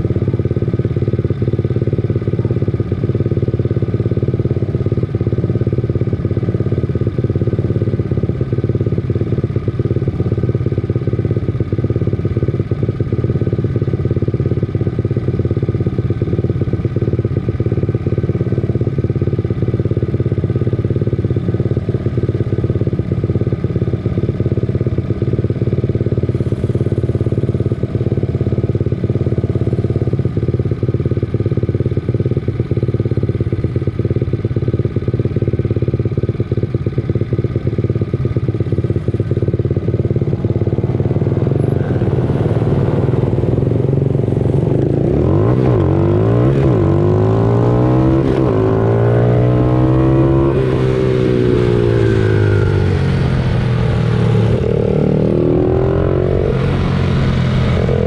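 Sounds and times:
pit bike engines racing: 49.8s - 58.0s.

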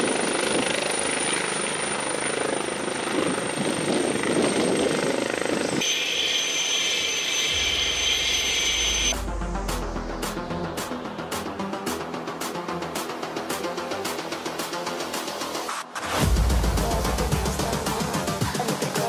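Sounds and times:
helicopter rotor noise: 0.0s - 15.7s
high turbine whine: 0.0s - 17.8s
low rumble: 7.6s - 11.3s
music: 7.6s - 19.0s.

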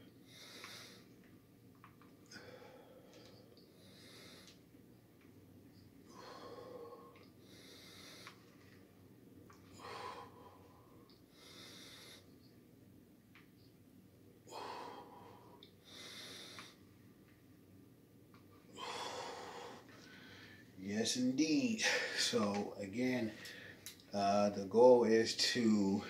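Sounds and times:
man breathing heavily: 0.2s - 1.2s, 2.3s - 4.6s, 6.1s - 8.6s, 9.7s - 12.3s, 14.4s - 16.8s, 18.7s - 20.8s, 21.8s - 22.5s, 23.1s - 23.9s.

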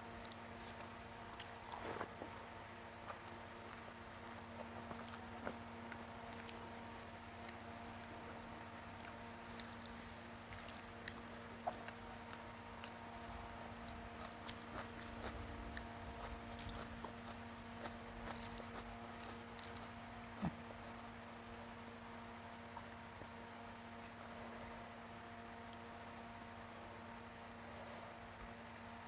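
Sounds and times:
steady low hum: 0.0s - 29.0s
person chewing: 0.2s - 13.0s, 13.6s - 21.8s.

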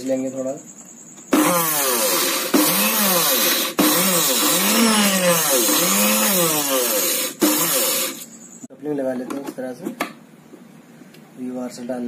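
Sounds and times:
motor with sandpaper hissing: 1.4s - 8.3s.

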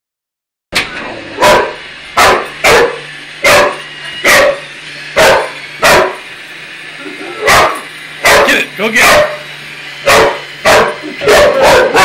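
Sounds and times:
dog barking sharply: 1.4s - 4.6s, 5.2s - 6.2s, 7.4s - 9.4s, 10.1s - 12.0s.

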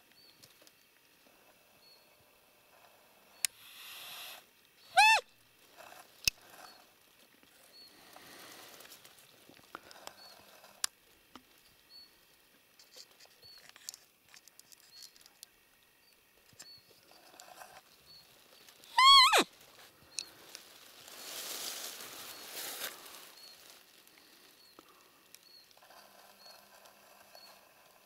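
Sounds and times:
small high chirps: 3.3s - 5.3s, 12.8s - 19.5s
deer call lure squeaky peep: 3.6s - 5.3s, 18.9s - 19.5s
faint rustles: 5.5s - 28.0s.

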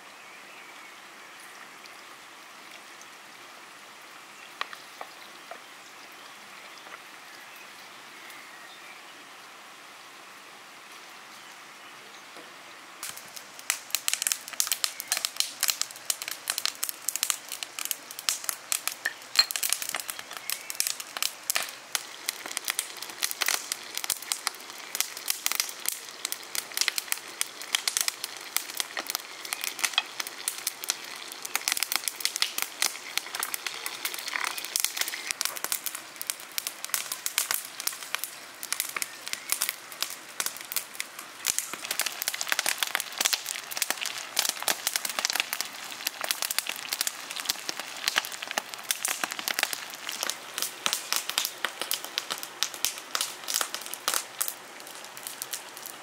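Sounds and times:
potatoes sizzling in hot oil: 13.0s - 56.0s.

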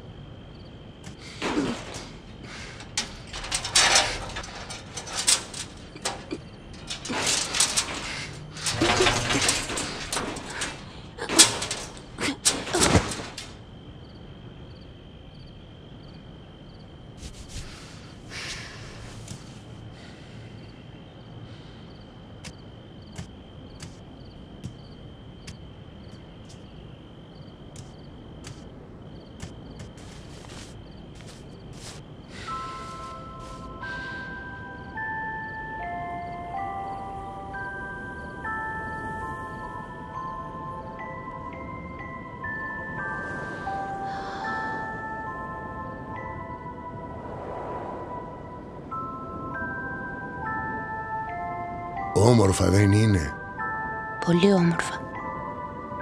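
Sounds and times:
wooden gate rattling and scraping: 1.2s - 13.7s.

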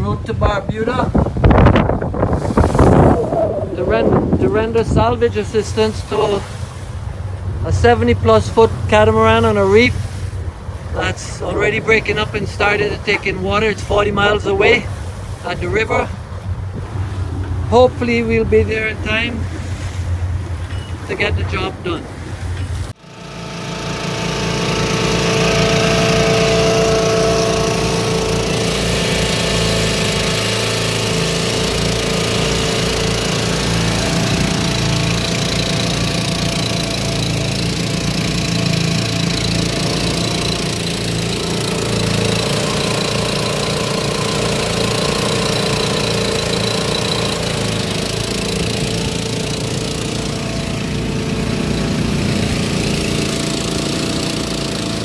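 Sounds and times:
generator engine running: 22.8s - 55.0s.

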